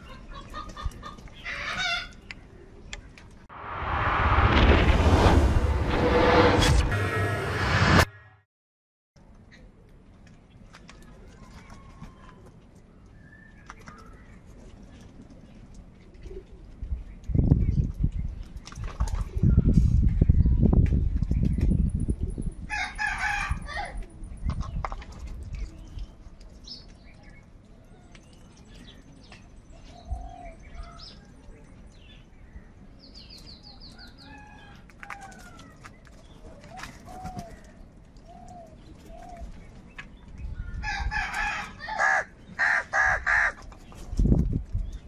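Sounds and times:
crows cawing: 41.5s - 43.6s.

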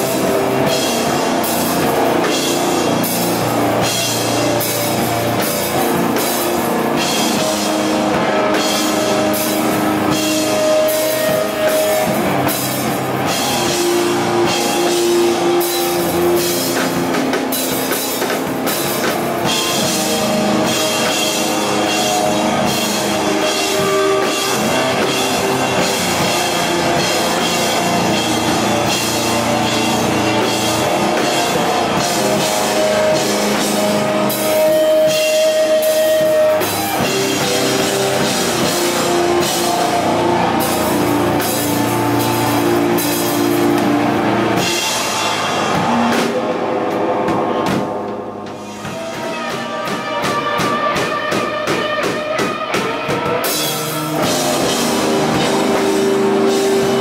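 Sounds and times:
heavy rock band playing: 0.0s - 57.0s.

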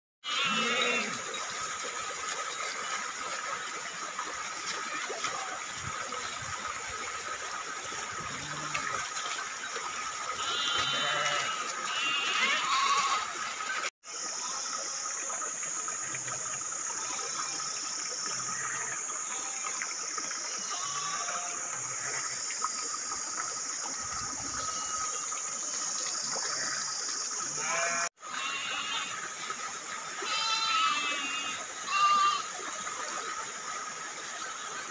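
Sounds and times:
stream water over rocks: 0.2s - 34.9s
flock bleating: 10.4s - 13.3s.

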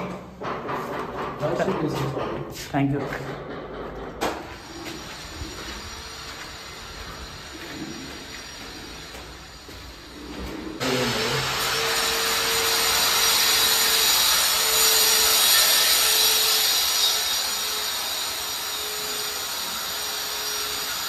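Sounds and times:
power tool hissing: 10.8s - 21.0s.

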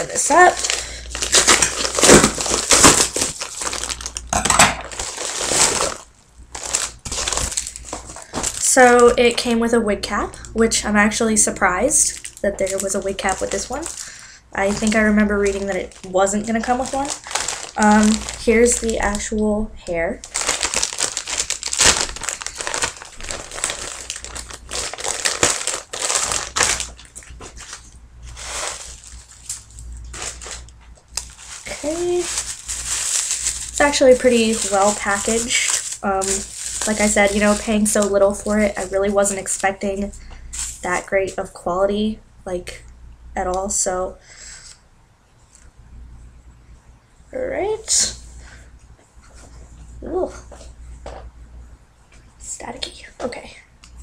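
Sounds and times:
packaging crinkling and rustling: 0.0s - 9.6s, 11.5s - 41.4s.

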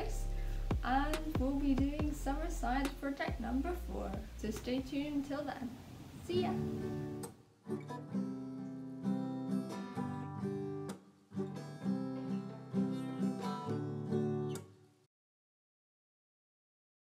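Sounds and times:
strummed acoustic guitar: 0.0s - 4.8s, 6.5s - 14.9s.

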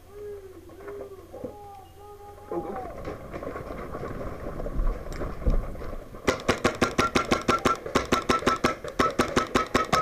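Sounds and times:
paintball marker shots: 6.3s - 10.0s.

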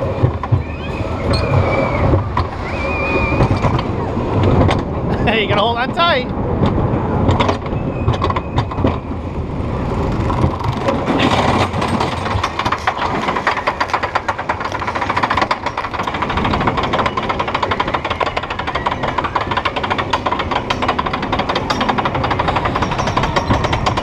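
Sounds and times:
roller coaster rolling on track: 0.0s - 24.0s
lift chain clacking: 10.2s - 24.0s.

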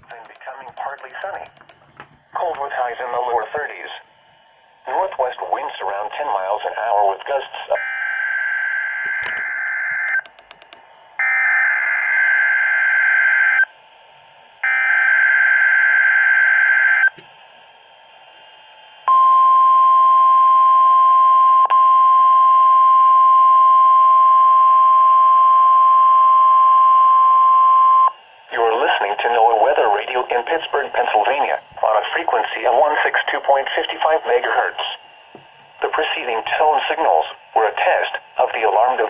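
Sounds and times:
steady warning alarm tone: 7.6s - 10.3s, 11.2s - 13.8s, 14.6s - 17.2s, 18.7s - 35.0s.

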